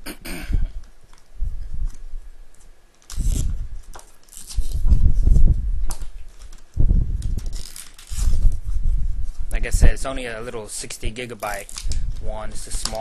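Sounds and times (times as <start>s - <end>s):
plastic packaging crinkling: 1.9s - 5.1s, 5.8s - 8.6s, 10.6s - 13.0s.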